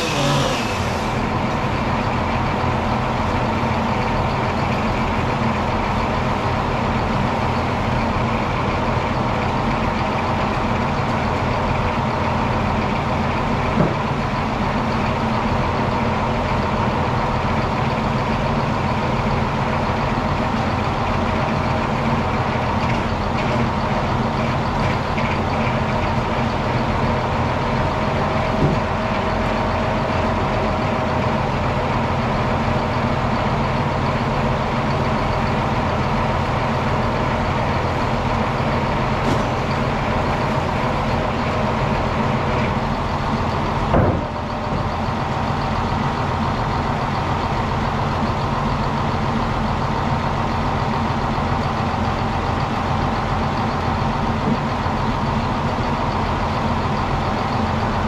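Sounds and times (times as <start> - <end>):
saw whining: 0.0 - 1.3
circular sawmill running: 0.0 - 58.0
engine humming: 0.0 - 58.0.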